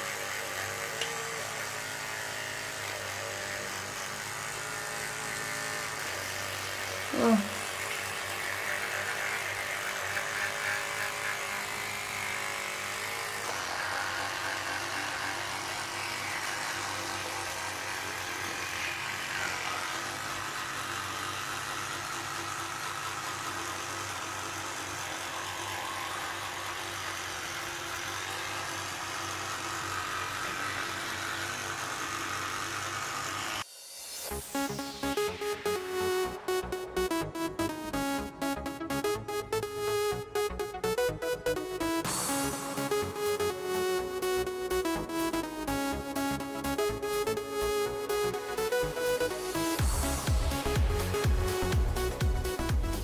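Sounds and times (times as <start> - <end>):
electric toothbrush buzzing: 0.0 - 53.0.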